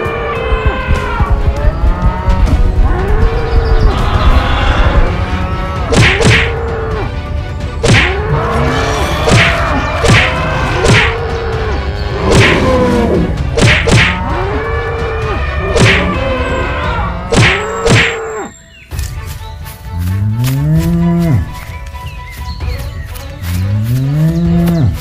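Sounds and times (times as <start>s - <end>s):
cartoon whacks: 5.9s - 6.5s, 7.8s - 8.2s, 9.3s - 11.2s, 12.3s - 12.7s, 13.6s - 14.2s, 15.8s - 16.2s, 17.3s - 18.2s.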